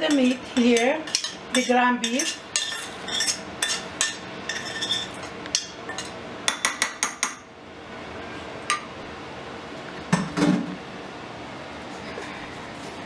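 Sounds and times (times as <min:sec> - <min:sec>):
metal spoon scraping frying pan: 0:00.0 - 0:06.1.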